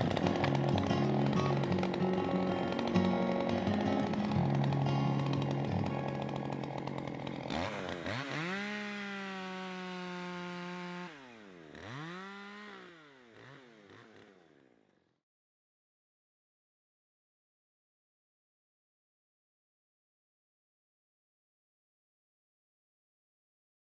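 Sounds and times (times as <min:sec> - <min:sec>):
music: 0:00.0 - 0:07.2
chainsaw engine revving: 0:00.0 - 0:14.9.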